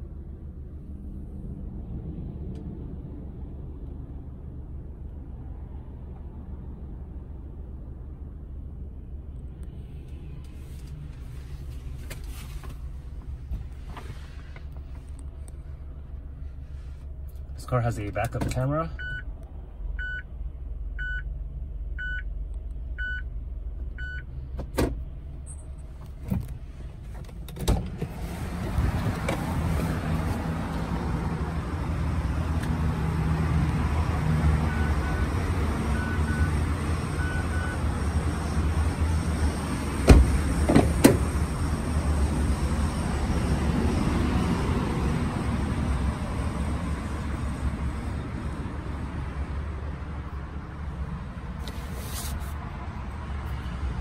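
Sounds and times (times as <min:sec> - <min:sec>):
low steady rumble: 0:00.0 - 0:33.1
reverse warning beeping: 0:18.9 - 0:19.3, 0:20.0 - 0:20.3, 0:21.0 - 0:21.3, 0:22.0 - 0:22.3, 0:23.0 - 0:23.3, 0:24.0 - 0:24.3, 0:34.6 - 0:36.5, 0:37.1 - 0:37.8.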